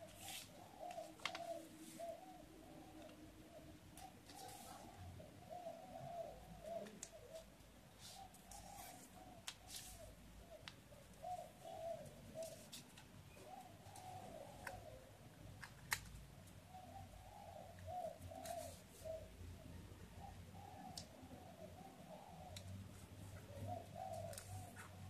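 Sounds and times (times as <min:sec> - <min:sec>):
faint bird cooing: 0:00.0 - 0:25.0
paper rustling and clicking: 0:00.1 - 0:01.6, 0:15.6 - 0:16.2, 0:24.2 - 0:24.9.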